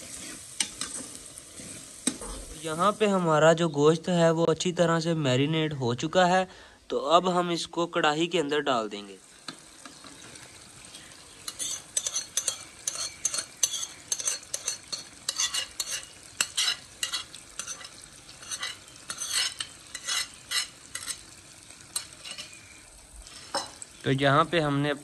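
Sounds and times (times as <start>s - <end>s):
spoon scraping metal pan: 0.0s - 2.6s, 11.5s - 21.3s, 21.9s - 22.6s, 23.2s - 23.8s
meat sizzling in a pan: 0.0s - 5.0s, 7.2s - 25.0s.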